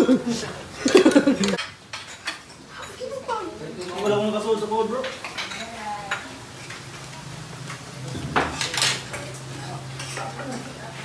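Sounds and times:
cutlery clinking on plates: 0.8s - 3.0s, 5.0s - 6.9s, 7.6s - 10.7s
sharp cutlery clatters: 0.9s - 3.0s, 5.0s - 6.9s, 7.6s - 10.6s.

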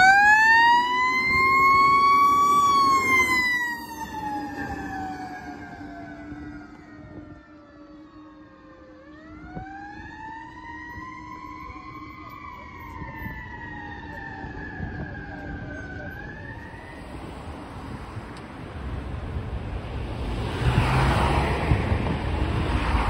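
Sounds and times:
fire engine siren wailing: 0.0s - 18.0s.

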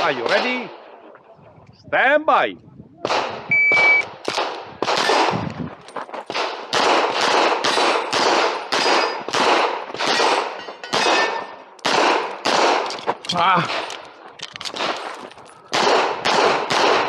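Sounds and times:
rapid pistol shots: 3.1s - 5.4s, 6.3s - 13.0s, 15.7s - 17.0s.

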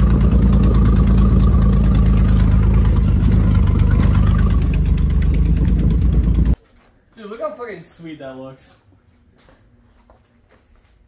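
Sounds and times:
truck engine running: 0.0s - 6.6s.

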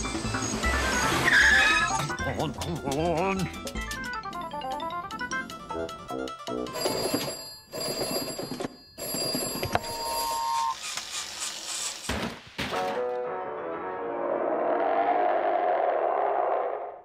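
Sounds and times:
cartoon music: 0.4s - 6.8s
rotary telephone bell ringing: 6.7s - 10.9s.

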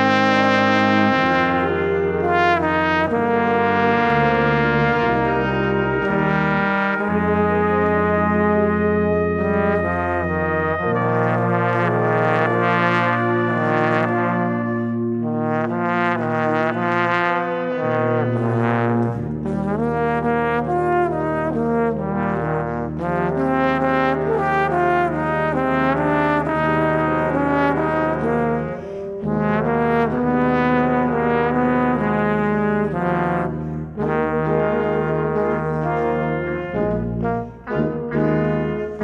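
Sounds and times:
brass quintet accompaniment: 0.0s - 39.0s
low tuba notes: 0.0s - 39.0s
solo trombone: 0.0s - 39.0s.

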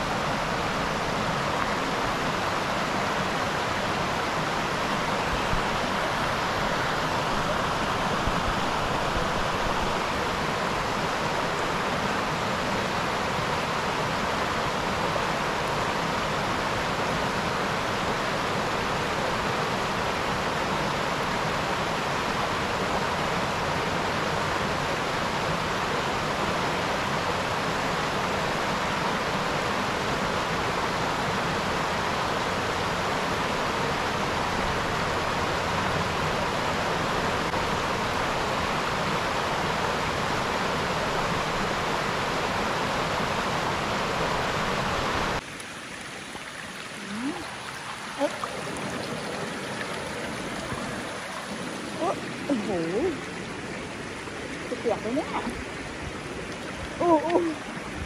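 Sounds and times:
creek running over stones: 0.0s - 58.0s
water trickling: 45.3s - 58.0s.

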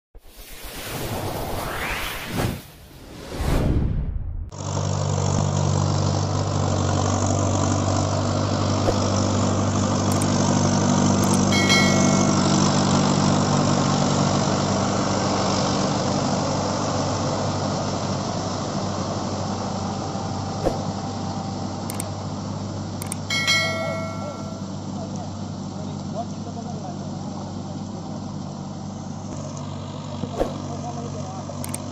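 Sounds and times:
short whoosh: 0.2s - 4.5s
tractor diesel engine under load: 4.5s - 31.9s.

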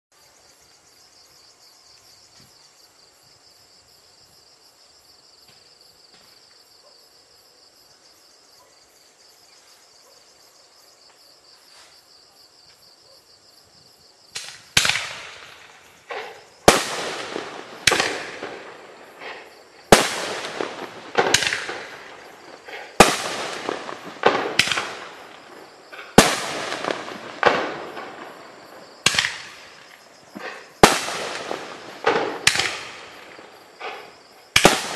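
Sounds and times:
firework bangs with crackling: 14.3s - 34.9s.

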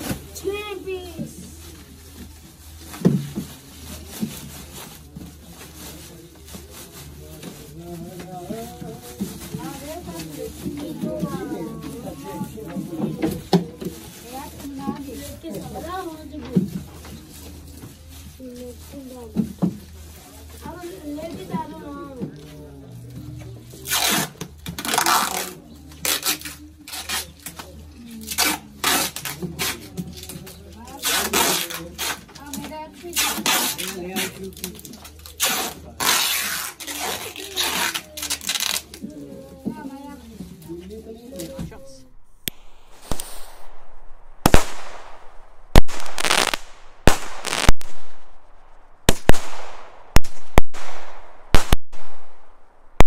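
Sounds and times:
packing tape pulled off roll: 23.8s - 39.2s
firework reports: 41.5s - 53.0s
firework hiss and crackle: 42.0s - 53.0s.

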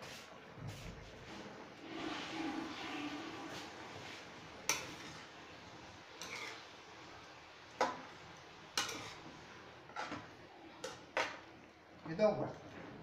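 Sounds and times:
spoon stirring food in sauce: 2.0s - 11.8s
metal spoon clinking on pan: 8.8s - 9.2s.

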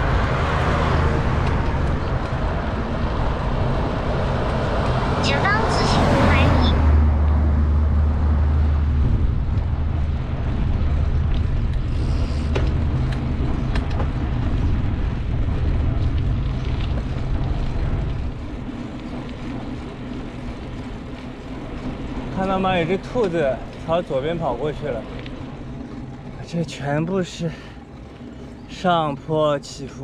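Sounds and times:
road noise: 0.0s - 30.0s
vehicle engine humming: 0.0s - 30.0s.

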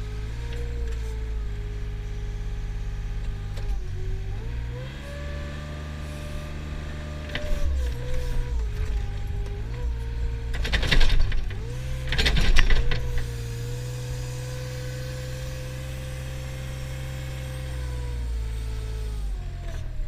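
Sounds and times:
loader engine running under load: 0.0s - 20.0s.

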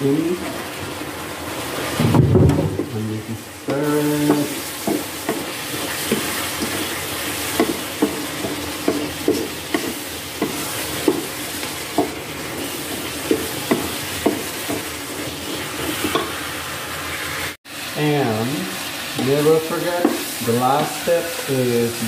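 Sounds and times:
food sizzling in skillet: 0.0s - 22.0s
wooden spatula knocking pan: 2.0s - 3.0s, 3.7s - 15.0s, 19.2s - 21.0s.

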